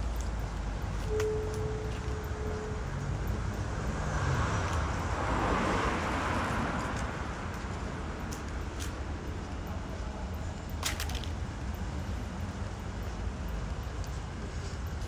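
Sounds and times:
city traffic noise: 0.0s - 15.0s
car passing: 3.3s - 8.3s.

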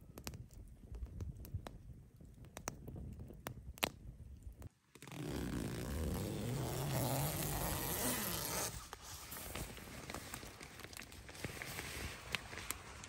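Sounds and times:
tent zipper opening: 5.0s - 10.6s
rustling: 5.0s - 13.0s.

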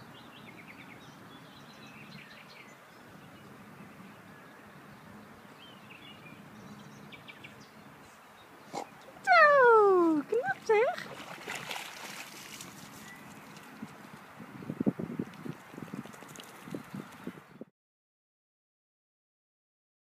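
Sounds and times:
bird chirps: 13.0s - 13.5s.

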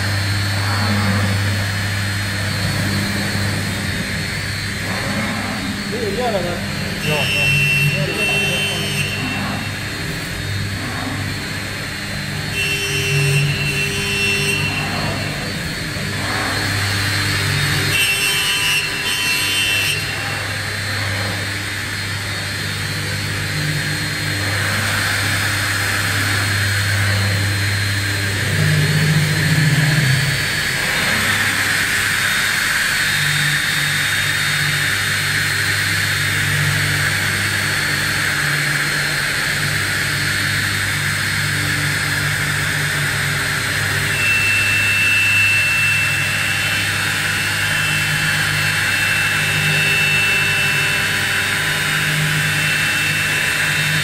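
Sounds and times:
machine motor hum: 0.0s - 54.0s
brief high whines: 43.8s - 46.8s.

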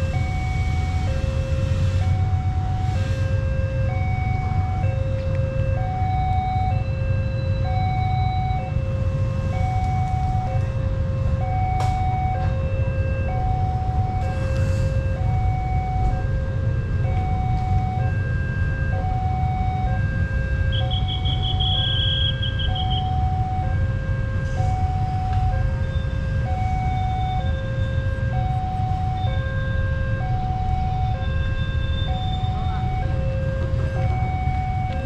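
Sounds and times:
steady low rumble: 0.0s - 35.0s
two-note crossing alarm: 18.9s - 23.7s, 24.6s - 33.2s.

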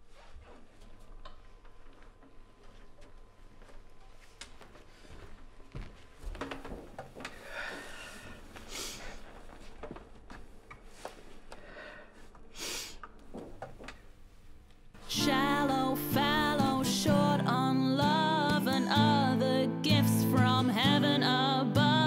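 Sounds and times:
acoustic guitar: 15.0s - 22.0s
person singing with vibrato: 15.0s - 22.0s.

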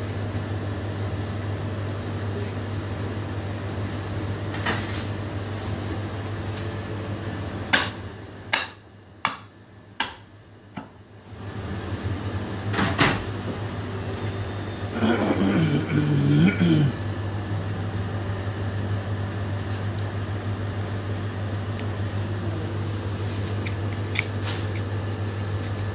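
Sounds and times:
steady low hum: 0.0s - 25.9s
axe chopping meat on wood: 7.7s - 10.2s.

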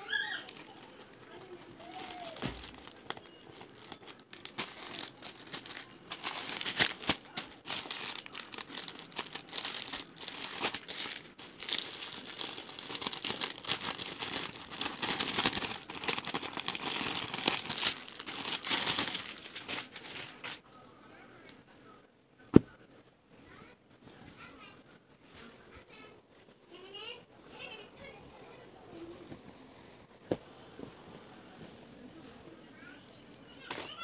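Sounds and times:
plastic bag crinkling: 0.0s - 20.6s.

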